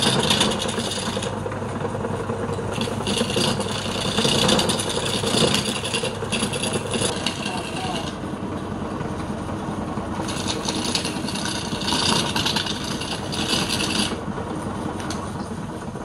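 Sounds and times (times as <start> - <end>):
turning tool scraping wood: 0.0 - 1.4, 2.2 - 8.2, 10.1 - 14.2
wood lathe running: 0.0 - 15.3.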